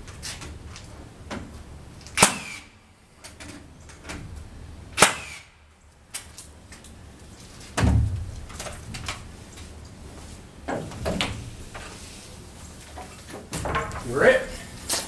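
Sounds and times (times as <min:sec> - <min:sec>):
nail gun firing: 0:02.1 - 0:02.7, 0:05.0 - 0:05.6
heavy thump: 0:07.8 - 0:08.6.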